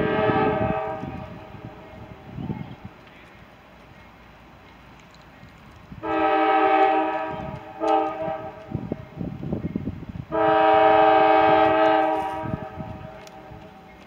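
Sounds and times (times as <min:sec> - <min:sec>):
locomotive air horn blasts: 0:00.0 - 0:02.1, 0:06.0 - 0:08.8, 0:10.3 - 0:13.6.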